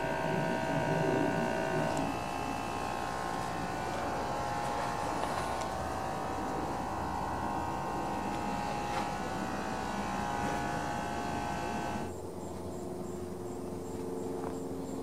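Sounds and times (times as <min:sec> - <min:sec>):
droning machine hum: 0:00.0 - 0:15.0.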